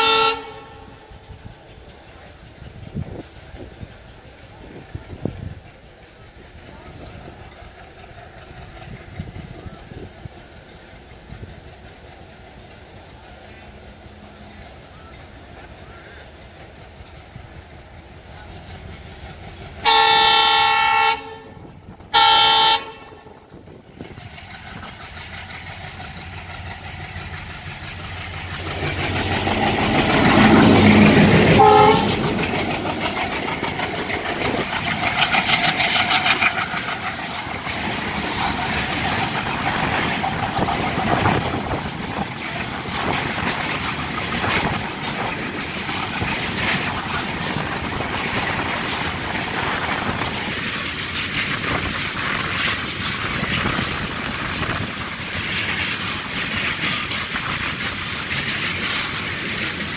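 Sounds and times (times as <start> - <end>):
locomotive air horn blasts: 0.0 - 0.9, 19.8 - 23.3, 31.5 - 32.3
diesel locomotive running past: 0.0 - 59.9
wagon wheels clattering over rail joints: 23.8 - 59.9.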